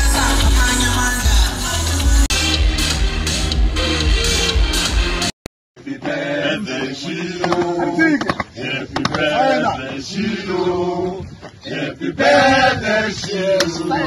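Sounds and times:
men singing together: 0:00.0 - 0:02.3, 0:05.8 - 0:14.0.

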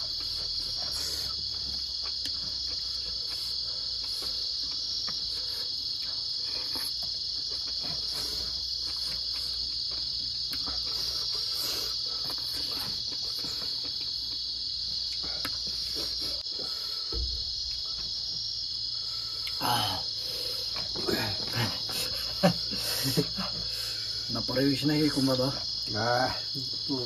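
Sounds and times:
people eating with fingers: 0:00.0 - 0:24.3
crickets chirring: 0:00.0 - 0:27.0
voices murmuring: 0:19.5 - 0:27.0.

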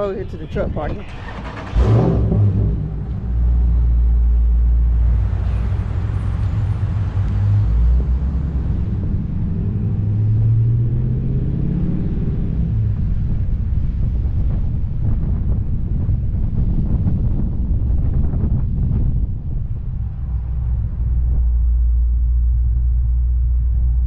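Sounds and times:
car engine rumbling while driving: 0:00.0 - 0:24.0
car engine starting and revving: 0:00.7 - 0:15.2.

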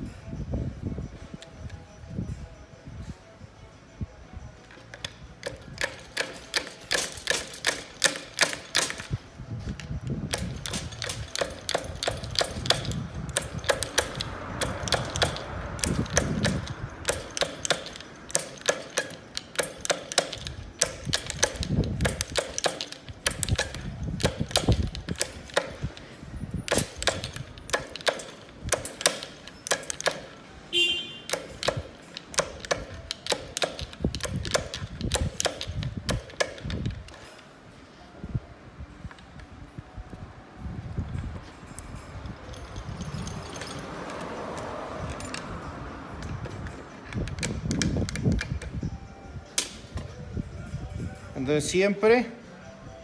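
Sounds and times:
low rumble of parts handled: 0:00.0 - 0:51.5
screwdriver clicking on metal gears: 0:04.6 - 0:30.6, 0:31.3 - 0:37.5, 0:41.1 - 0:50.1.

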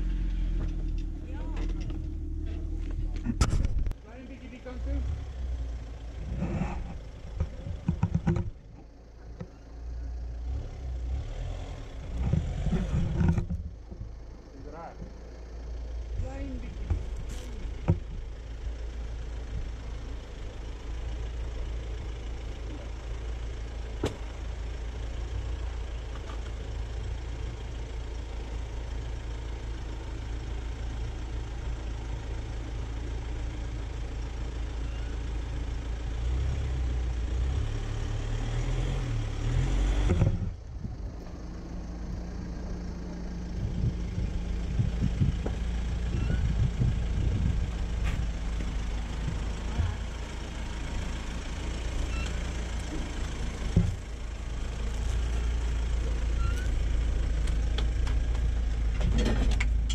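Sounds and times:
off-road vehicle engine running: 0:00.0 - 0:59.9
knocks and rattles: 0:06.8 - 0:09.5.

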